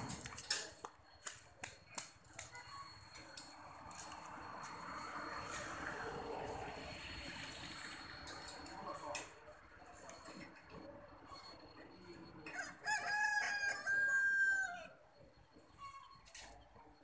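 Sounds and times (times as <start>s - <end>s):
rooster crowing: 12.5s - 15.0s.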